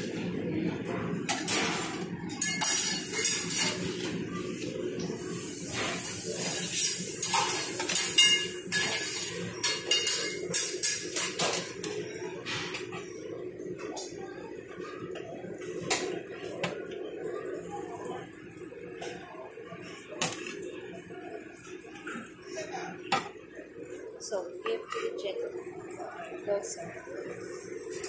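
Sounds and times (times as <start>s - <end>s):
steady background hum: 0.0s - 28.0s
metal tongs clinking on pan: 6.8s - 11.7s.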